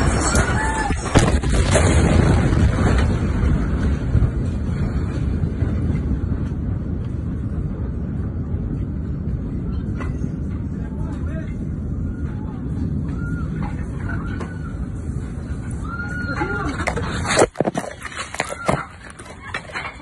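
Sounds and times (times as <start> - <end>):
explosion with low rumble: 0.0 - 15.8.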